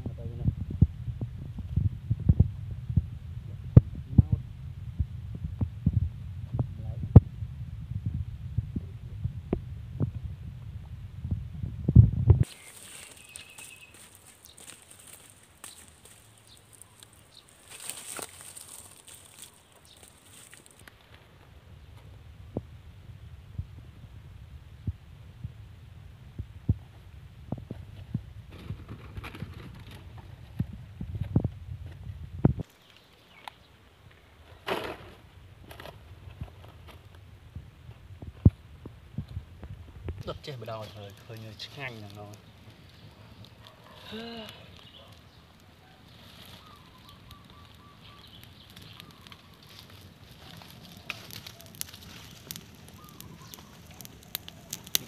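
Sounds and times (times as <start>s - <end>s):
low rumble: 0.0s - 12.5s
fire low rumble: 0.0s - 55.0s
fire crackling and popping: 0.4s - 55.0s
wood fire cracks and knocks: 11.9s - 21.2s, 28.5s - 32.8s, 34.6s - 37.2s, 46.2s - 55.0s.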